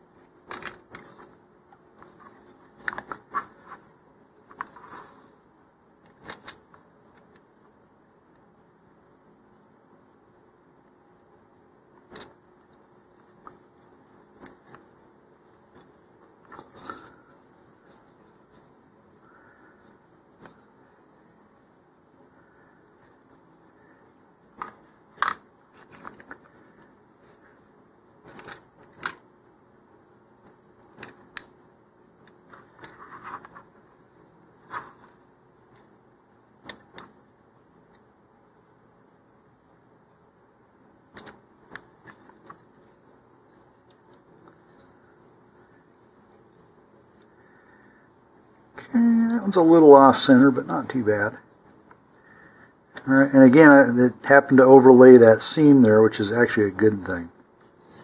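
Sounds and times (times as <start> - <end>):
rustling: 0.0 - 7.6, 12.0 - 29.3, 32.2 - 36.0, 41.0 - 58.0
paper crinkling: 0.1 - 5.3, 6.0 - 7.4, 12.1 - 21.1, 24.5 - 27.6, 28.2 - 29.2, 32.3 - 35.9, 41.1 - 47.3
fingers tapping and rustling: 41.1 - 42.9.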